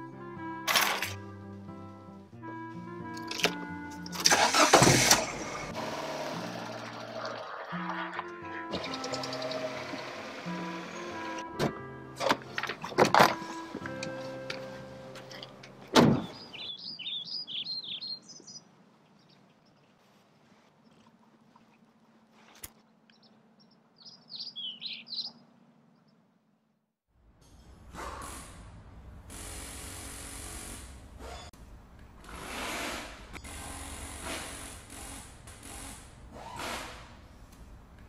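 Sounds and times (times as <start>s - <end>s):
car door slamming: 15.9s - 16.4s
small birds chirping: 16.2s - 20.0s, 23.1s - 26.2s.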